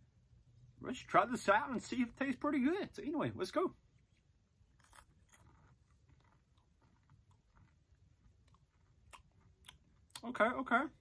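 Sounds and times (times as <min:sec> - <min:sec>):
chewing popcorn: 0:03.9 - 0:10.4.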